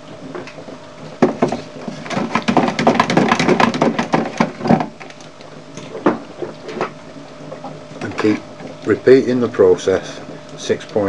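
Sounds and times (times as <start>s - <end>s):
clicks and knocks on plastic tank: 1.2s - 5.2s.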